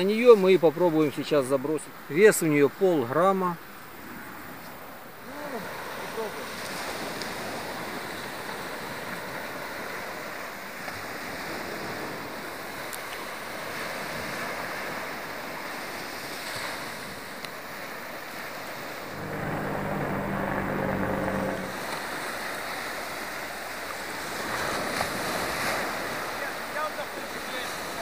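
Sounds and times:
low steady hum: 19.1s - 21.9s.

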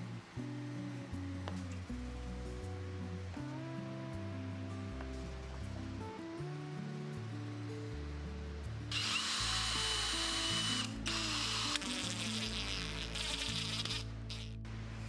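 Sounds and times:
power drill motor whining: 8.9s - 14.5s.

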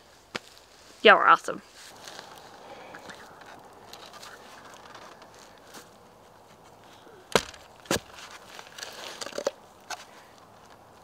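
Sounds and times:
post hole digger striking soil: 7.3s - 10.0s.

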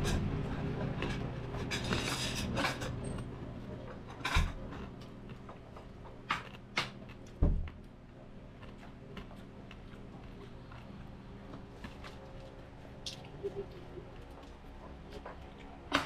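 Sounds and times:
crispy food crunching and tearing: 8.4s - 14.6s.

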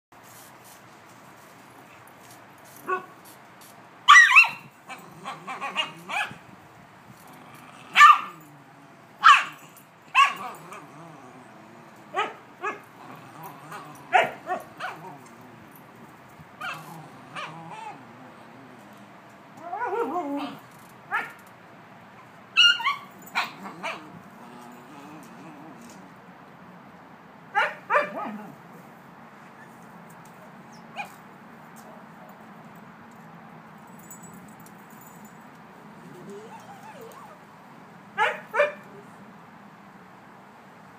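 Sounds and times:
dogs barking and yipping: 4.1s - 6.5s, 7.4s - 8.6s, 9.2s - 11.0s, 11.8s - 15.8s, 16.6s - 18.1s, 19.6s - 21.4s, 22.2s - 26.0s, 27.5s - 28.6s, 36.0s - 37.4s, 38.2s - 38.9s.

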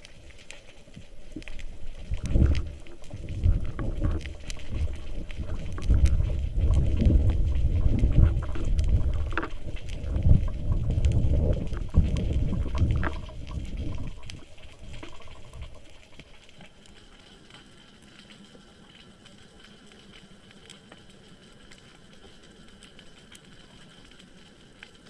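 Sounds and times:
low underwater rumble: 0.0s - 17.4s
faint underwater clicks: 0.0s - 25.0s.

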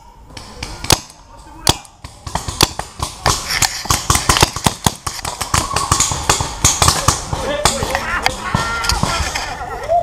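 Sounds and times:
paintball markers firing: 0.4s - 9.4s.

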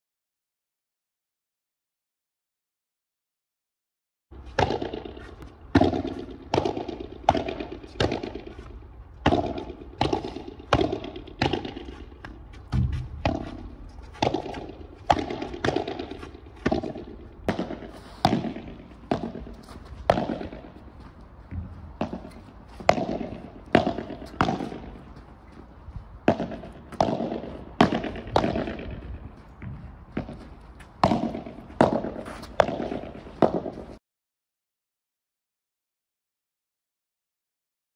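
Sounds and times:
padel ball struck with rackets: 4.5s - 8.5s, 9.2s - 25.1s, 26.2s - 34.0s.

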